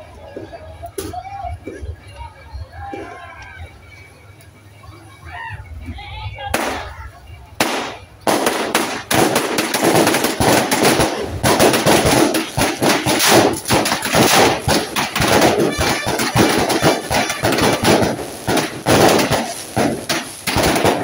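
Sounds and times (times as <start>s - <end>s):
fireworks crackling and popping: 0.0s - 2.0s, 6.5s - 21.0s
firework bang: 6.6s - 7.0s, 7.6s - 21.0s.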